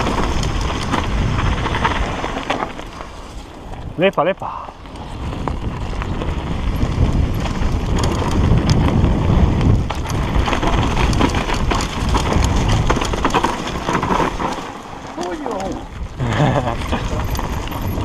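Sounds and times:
bike knocking and rattling: 0.0 - 18.0
tyres rumbling over dirt: 0.0 - 18.0.

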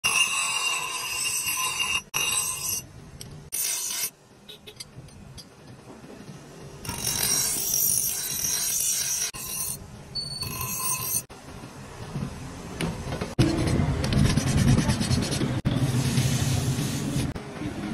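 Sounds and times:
bench grinder grinding steel: 0.0 - 2.8, 6.8 - 9.8.

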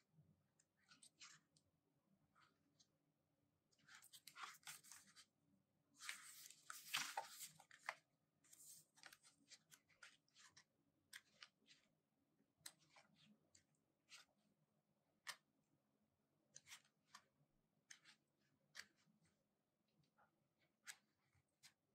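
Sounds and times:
paper pages rustling and flicking: 3.8 - 5.3, 6.0 - 11.9.

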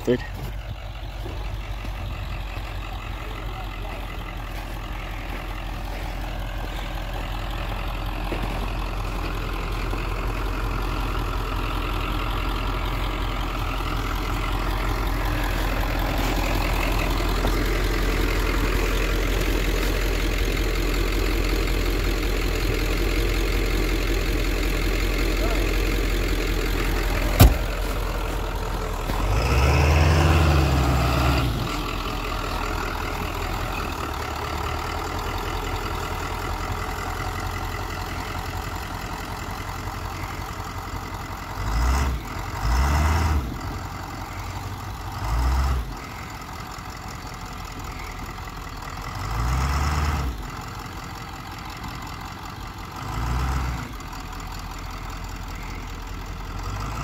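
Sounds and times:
truck engine idling: 0.0 - 57.0
engine revving: 24.8 - 33.0, 41.5 - 43.9, 45.1 - 46.2, 49.0 - 50.5, 53.0 - 54.1
sharp knock: 27.4 - 27.7.

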